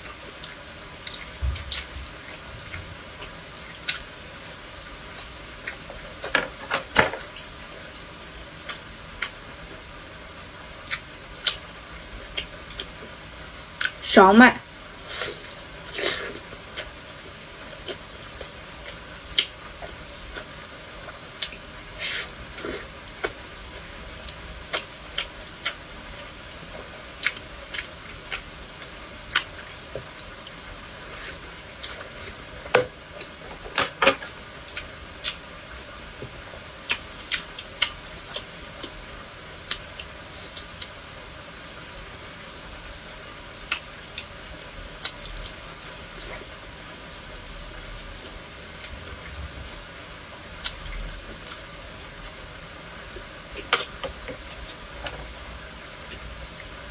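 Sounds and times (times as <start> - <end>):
steady faint hiss: 0.0 - 56.9
person chewing food: 17.6 - 41.0, 50.6 - 56.8.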